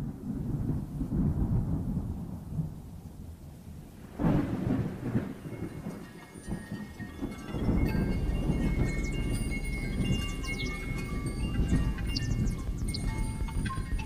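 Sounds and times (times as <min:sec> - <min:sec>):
deep rolling rumble: 0:03.8 - 0:14.0.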